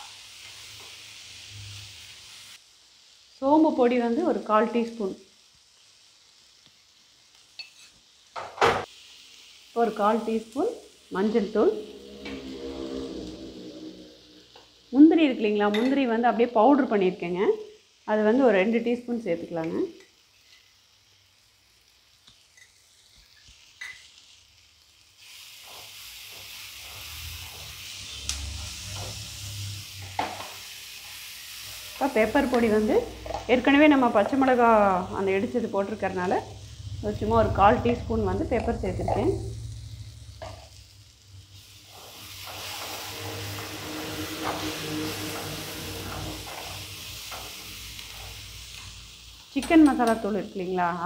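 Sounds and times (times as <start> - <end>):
masala sizzling in pan: 0.0 - 51.0
wooden spatula stirring and scraping: 41.9 - 48.4.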